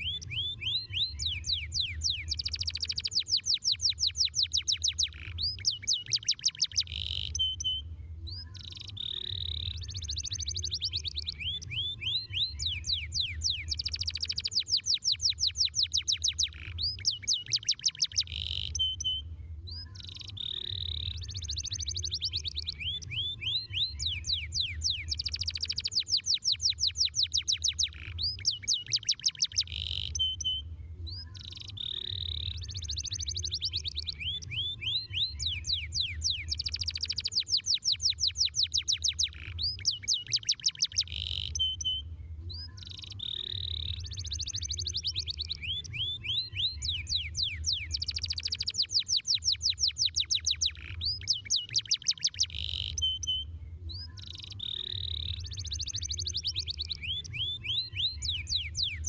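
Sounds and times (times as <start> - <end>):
canary singing fast trills: 0.0 - 59.0
low steady hum: 7.0 - 13.9, 18.8 - 25.3, 30.2 - 36.9, 41.6 - 47.9, 53.0 - 59.0.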